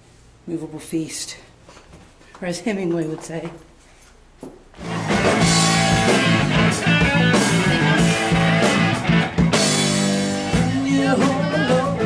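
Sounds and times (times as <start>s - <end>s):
drum and cymbal hits: 4.8s - 11.9s
bass guitar: 4.8s - 12.0s
electric guitar: 4.8s - 12.0s.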